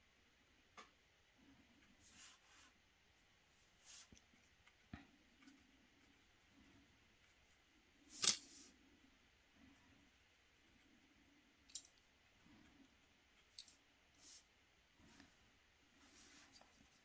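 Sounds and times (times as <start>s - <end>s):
soft scrape: 2.0s - 2.8s, 16.0s - 17.0s.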